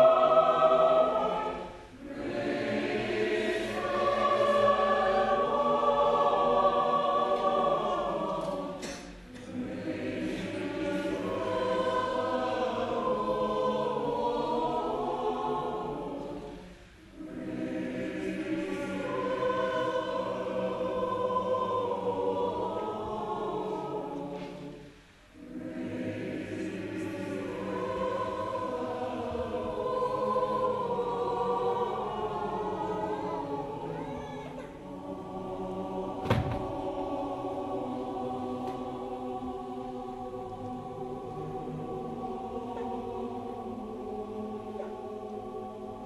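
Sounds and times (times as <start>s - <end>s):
mixed choir singing: 0.0s - 46.0s
sharp knock: 36.2s - 36.6s.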